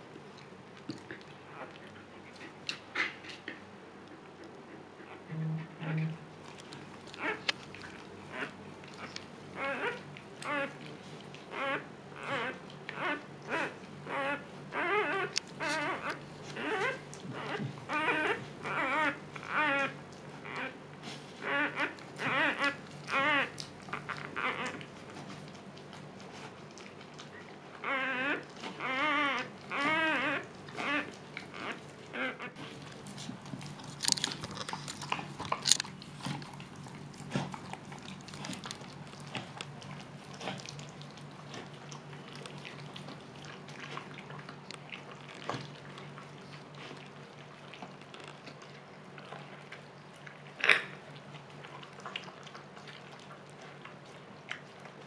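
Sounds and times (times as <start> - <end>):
dog whimpers: 4.7 - 6.3, 7.2 - 7.5, 8.3 - 10.8, 11.5 - 20.8, 21.4 - 24.9, 27.4 - 32.6.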